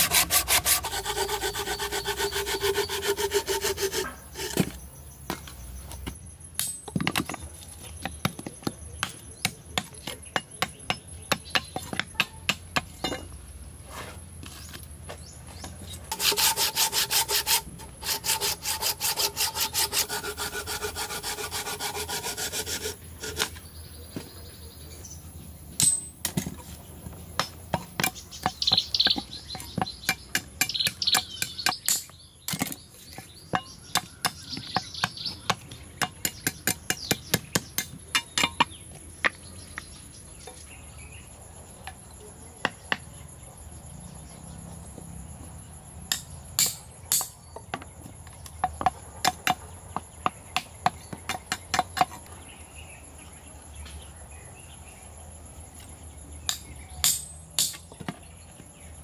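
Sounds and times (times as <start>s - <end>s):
rasping scrapes: 0.0s - 4.8s, 16.1s - 23.7s
insects droning: 0.0s - 59.0s.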